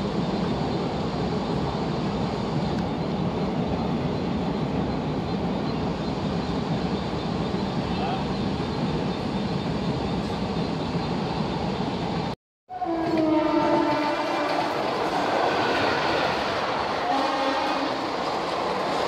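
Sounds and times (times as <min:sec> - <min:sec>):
train horn: 0:12.7 - 0:14.9, 0:17.0 - 0:18.1
train coaches wheel clatter: 0:13.0 - 0:19.0.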